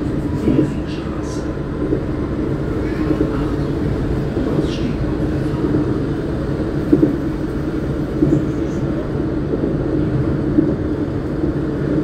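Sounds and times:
tram humming: 0.0s - 12.0s.

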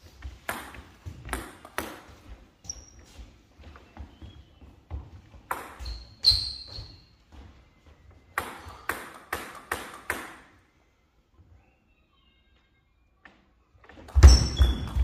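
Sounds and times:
table tennis ball bouncing: 0.4s - 2.1s, 5.4s - 6.8s, 8.3s - 10.5s.

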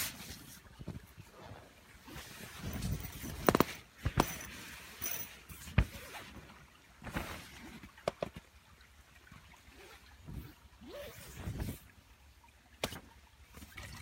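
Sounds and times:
handling rustling: 2.1s - 8.4s.

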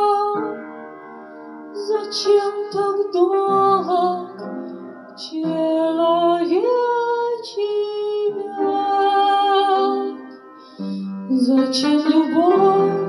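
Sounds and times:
woman singing into a microphone: 0.0s - 0.5s, 1.8s - 4.4s, 5.2s - 10.2s, 11.2s - 13.0s.

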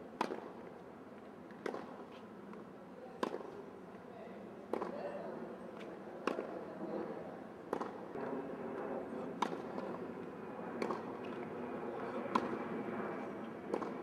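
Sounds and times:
tennis ball hit by racket: 0.2s - 0.5s, 7.7s - 8.0s, 9.4s - 9.9s, 13.7s - 14.0s.

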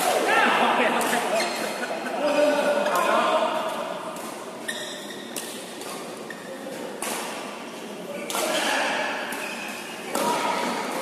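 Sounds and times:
shoe squeak: 1.4s - 1.7s, 4.6s - 5.4s, 9.4s - 10.0s.

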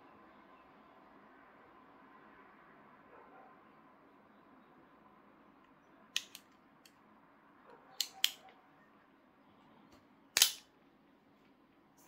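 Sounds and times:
switchblade snapping open: 6.2s - 6.4s, 10.4s - 10.6s
knife mechanism clicking: 10.4s - 10.6s.

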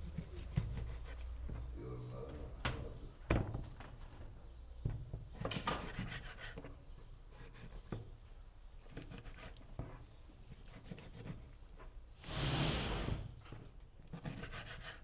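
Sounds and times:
knife cutting raw chicken: 0.0s - 1.7s, 5.4s - 6.7s, 7.3s - 8.1s, 8.8s - 9.8s, 10.4s - 11.8s, 14.0s - 15.0s
short scraping: 12.2s - 13.3s.

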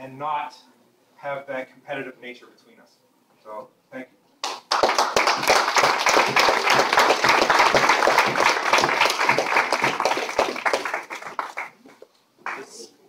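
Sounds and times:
group applauding: 4.4s - 12.9s.

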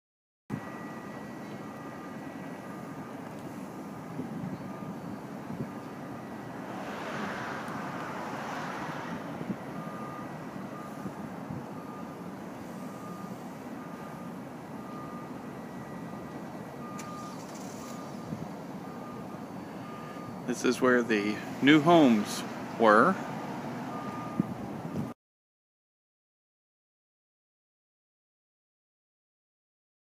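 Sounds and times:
reversing alarm beeping: 0.5s - 7.3s, 9.4s - 25.2s
low rumble of traffic: 0.5s - 25.2s.

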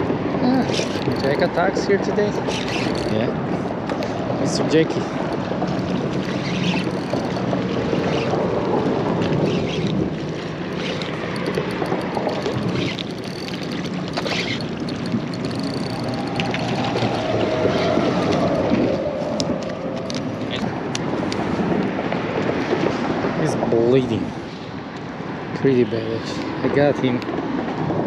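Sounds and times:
boat motor running: 0.0s - 21.8s
waves washing: 0.0s - 25.4s
wind on microphone: 0.0s - 25.6s.

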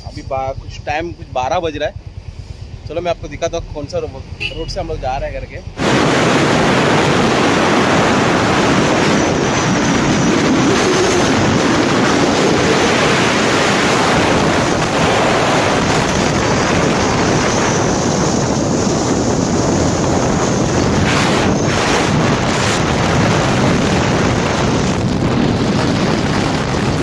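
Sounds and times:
wind buffeting microphone: 5.7s - 27.0s.

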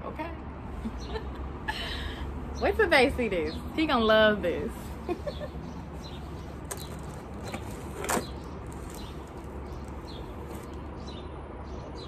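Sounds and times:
outdoor background noise: 0.0s - 12.0s
cardboard and plastic rustling: 6.1s - 10.9s.

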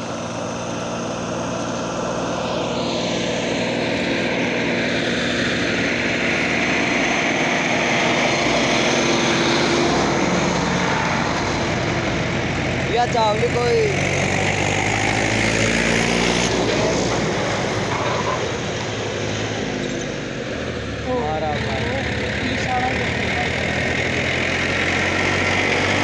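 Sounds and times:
diesel tractor engine passing: 0.0s - 26.0s.

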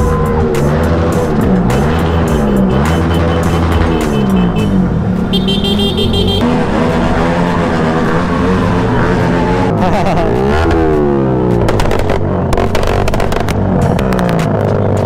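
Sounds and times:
motorcycle engines accelerating: 0.0s - 15.0s
short horn beep: 1.8s - 6.4s.

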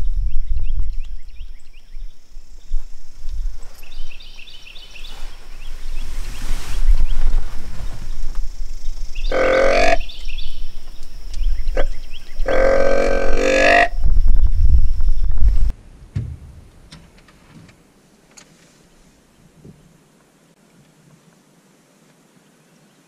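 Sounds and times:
bleat-like calls: 9.3s - 10.0s, 11.8s - 13.9s
low rumble: 11.4s - 17.2s.

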